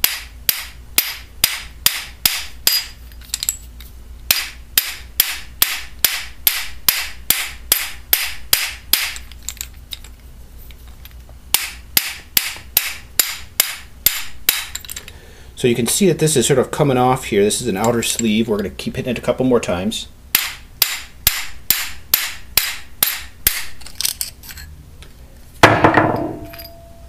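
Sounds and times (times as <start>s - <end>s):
hammer striking metal: 25.6s - 27.0s.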